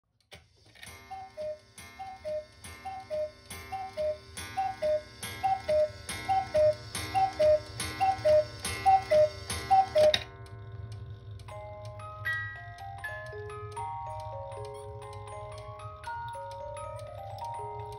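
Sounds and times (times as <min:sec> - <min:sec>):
clock mechanism clicks: 0:00.2 - 0:17.9
music box plucking a tune: 0:00.8 - 0:17.9
cuckoo clock two-note call: 0:00.9 - 0:10.3.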